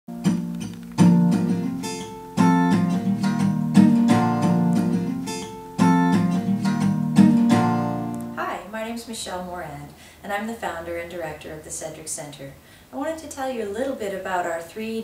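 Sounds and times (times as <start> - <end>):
acoustic guitar strumming chords: 0.1 - 8.4.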